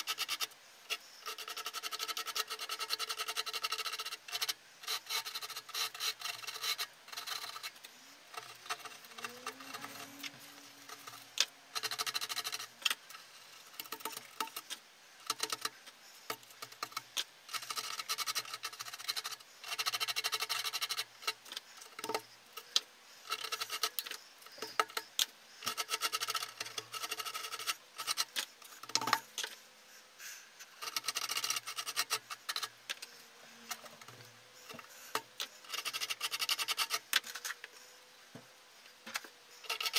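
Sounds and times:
hand tool scraping insulation: 0.0 - 29.6.

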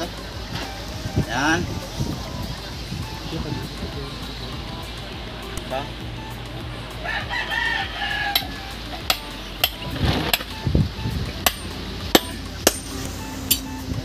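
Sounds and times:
rooster crowing: 7.0 - 8.8
hammer tapping on metal: 8.3 - 10.5, 11.4 - 13.7.

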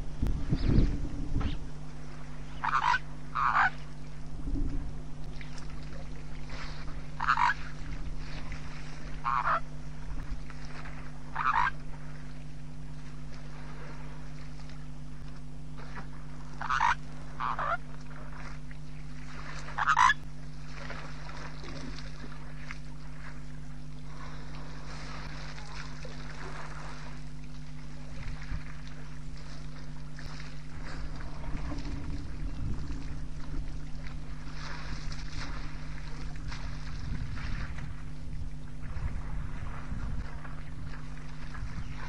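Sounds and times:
wind rumble on microphone: 0.0 - 12.4, 20.7 - 42.0
steady low hum: 0.0 - 42.0
honking bird calls: 2.4 - 3.9, 7.1 - 7.7, 9.1 - 9.8, 11.3 - 11.8, 16.5 - 17.9, 19.7 - 20.3.

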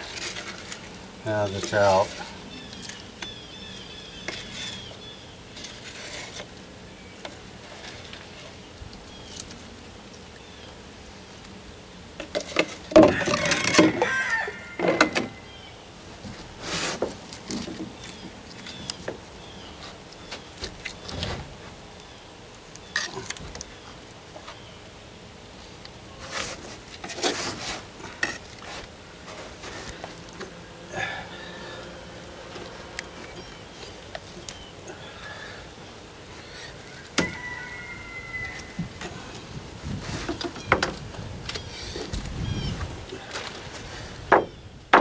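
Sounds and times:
soft scrapes and rubs: 5.5 - 6.5.

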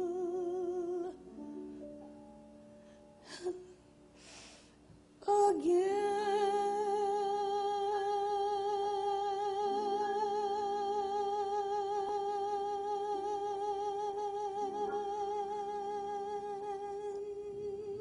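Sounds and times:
woman singing long vibrato note: 0.0 - 1.6, 5.2 - 18.0
soft low accompaniment: 0.0 - 18.0.

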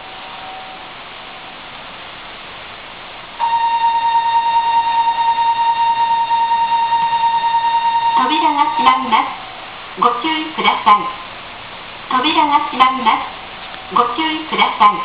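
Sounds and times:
faint hiss: 0.0 - 15.0
high electronic buzzer tone: 3.4 - 9.5.

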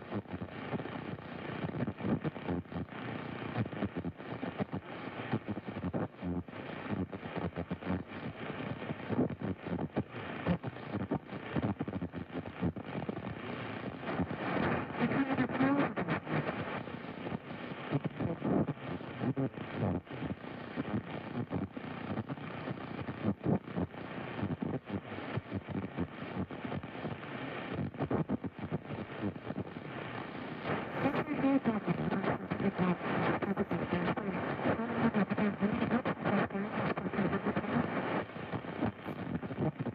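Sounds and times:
radio static hiss: 0.0 - 39.9.

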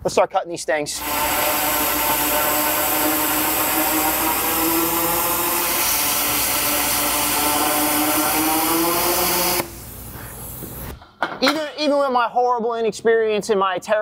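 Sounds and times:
steady hum: 0.9 - 11.0
plasma cutter hissing: 1.0 - 11.0.

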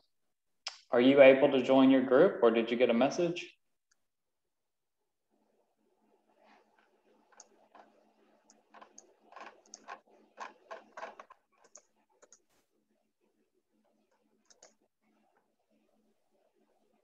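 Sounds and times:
computer keyboard typing: 6.7 - 12.5, 14.1 - 14.8.

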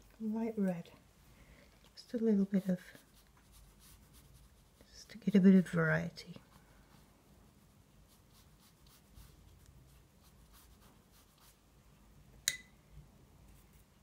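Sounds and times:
brush strokes on paper: 2.4 - 11.6.

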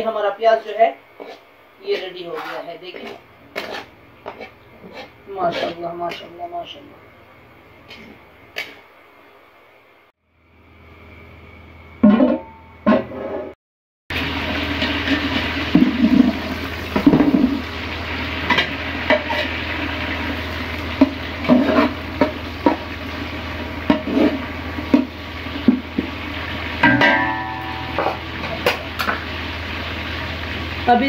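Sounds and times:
onions sizzling in pot: 0.0 - 8.8, 14.1 - 31.0
metal spatula scraping pot: 1.2 - 6.4, 18.5 - 19.6, 21.0 - 22.8, 23.8 - 25.8.

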